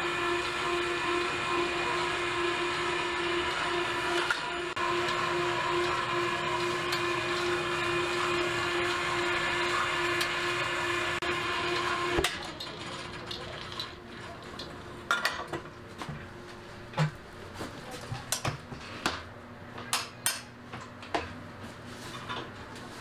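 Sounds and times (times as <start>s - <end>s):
electric motor humming: 0.0s - 12.2s.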